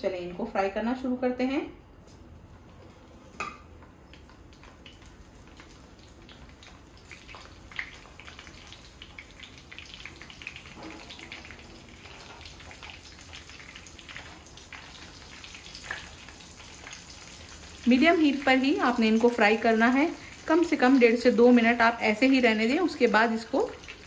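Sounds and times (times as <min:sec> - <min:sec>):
cutlets sizzling in oil: 0:02.4 - 0:24.0.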